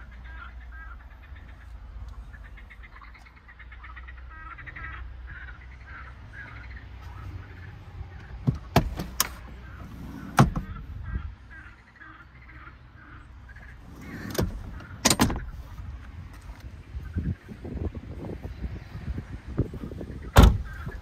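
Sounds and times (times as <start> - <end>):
birds chirping: 0.0 - 21.0
steady low rumble: 0.0 - 21.0
clicks and knocks of car fittings: 14.3 - 15.5.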